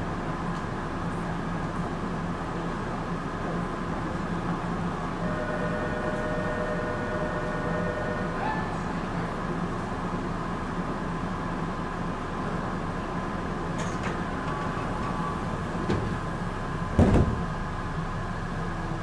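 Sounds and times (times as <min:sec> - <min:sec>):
train equipment humming: 0:00.0 - 0:19.0
sliding doors shutting thump: 0:13.8 - 0:16.3, 0:16.9 - 0:17.5.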